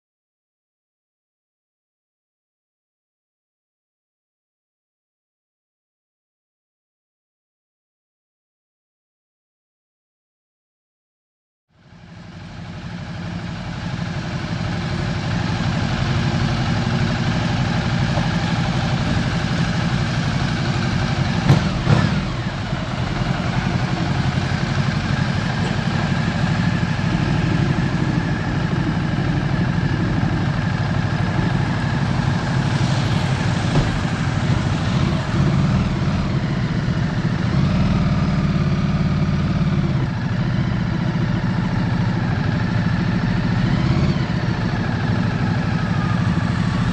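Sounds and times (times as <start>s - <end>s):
motorcycle engines idling: 11.8s - 46.9s.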